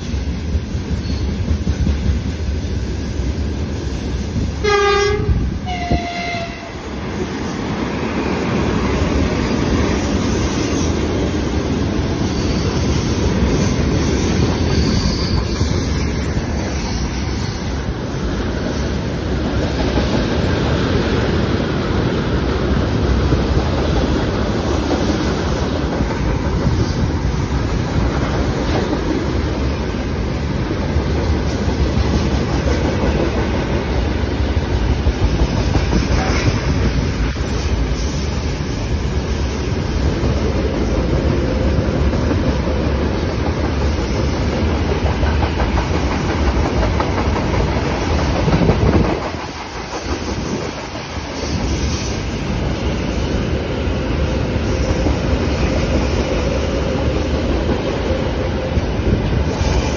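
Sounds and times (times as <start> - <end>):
freight trains rolling past: 0.0 - 59.9.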